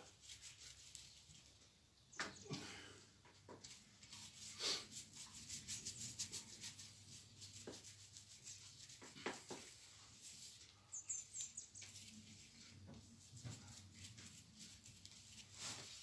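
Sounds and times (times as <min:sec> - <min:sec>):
faint high chirps: 0:10.8 - 0:12.1.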